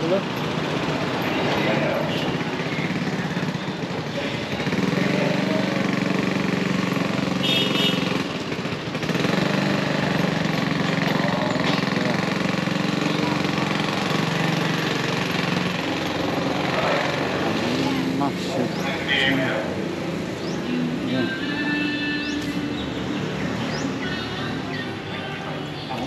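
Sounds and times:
small petrol engine running: 0:00.0 - 0:21.4.

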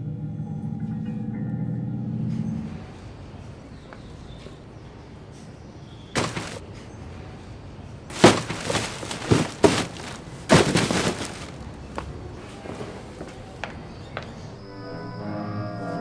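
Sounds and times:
dull thumps: 0:06.2 - 0:06.6, 0:08.1 - 0:11.7
plastic garbage bags crinkling: 0:06.2 - 0:06.6, 0:08.1 - 0:11.8.

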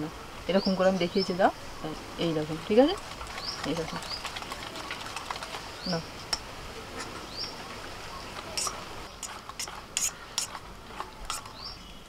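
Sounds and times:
bird chirping: 0:07.0 - 0:12.0.

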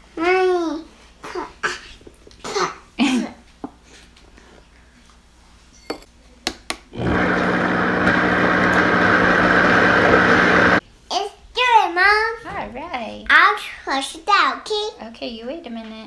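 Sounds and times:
blender motor running: 0:07.0 - 0:10.8.

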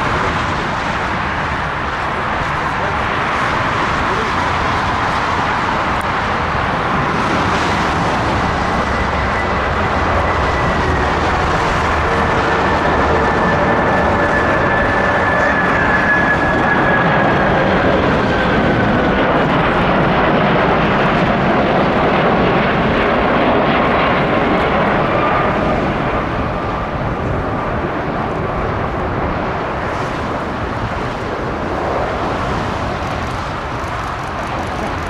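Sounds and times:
jet engines rumbling: 0:00.0 - 0:35.0.

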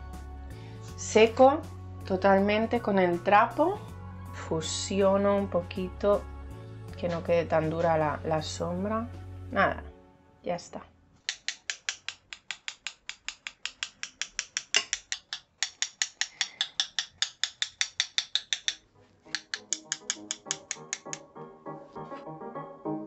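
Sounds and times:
paintbrush tapping on brush handle: 0:11.3 - 0:21.2.

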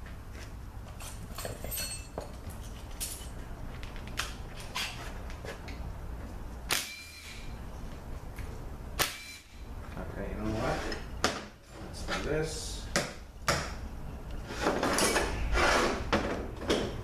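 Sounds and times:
metal clanks ringing: 0:01.1 - 0:02.3.

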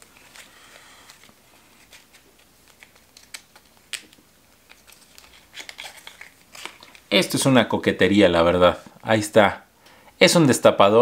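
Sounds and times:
plastic packaging crinkling: 0:00.1 - 0:07.2.

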